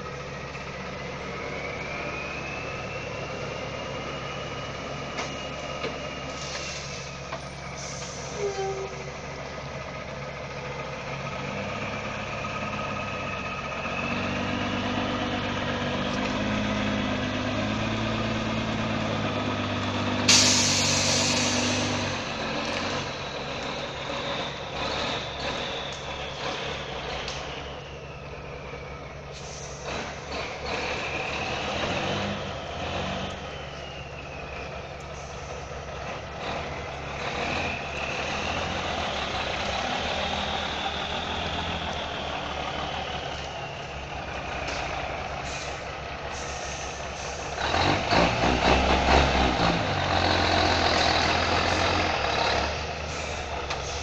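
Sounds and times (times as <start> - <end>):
truck diesel engine labouring: 0.0 - 54.0
air brakes hissing: 5.0 - 9.3, 20.1 - 22.2, 25.2 - 30.3, 32.5 - 35.9, 42.7 - 47.6, 52.9 - 54.0.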